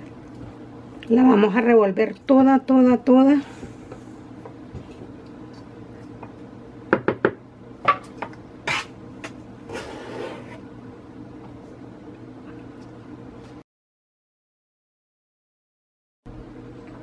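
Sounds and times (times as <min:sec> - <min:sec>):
spatula knocking on metal bowl: 0:06.9 - 0:08.0
measuring cup scraping in flour: 0:09.7 - 0:10.7.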